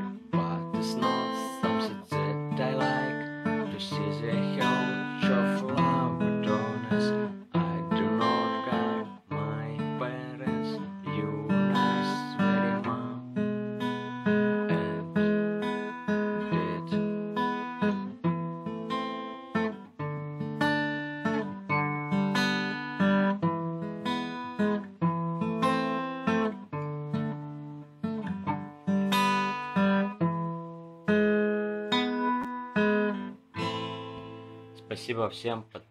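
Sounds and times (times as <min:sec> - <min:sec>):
acoustic guitar strumming: 0:00.0 - 0:35.8.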